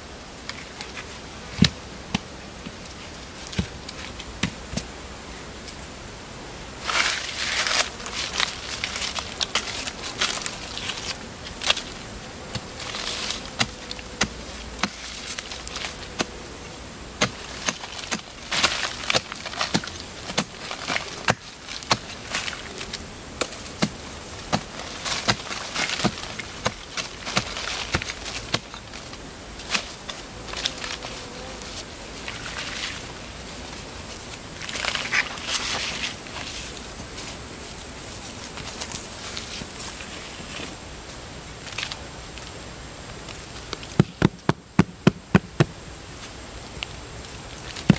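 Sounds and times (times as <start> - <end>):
faint insect buzz: 0.0 - 47.9
digging stick knocking in soil: 6.8 - 16.4, 17.2 - 31.0
hands scraping loose soil: 6.8 - 40.8.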